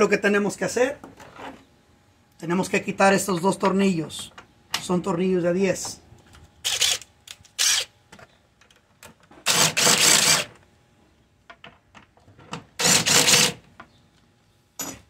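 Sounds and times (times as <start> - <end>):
cordless driver whirring: 6.6 - 7.9, 12.8 - 13.6.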